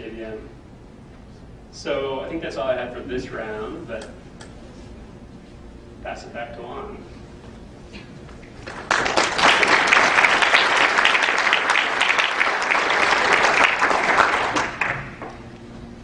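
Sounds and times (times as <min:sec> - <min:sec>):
audience applauding: 0:08.5 - 0:15.4.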